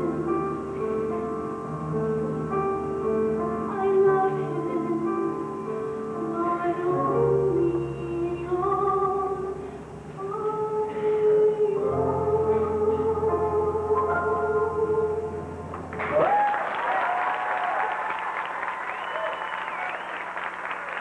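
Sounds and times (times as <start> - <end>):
woman singing into a microphone: 3.4 - 15.5.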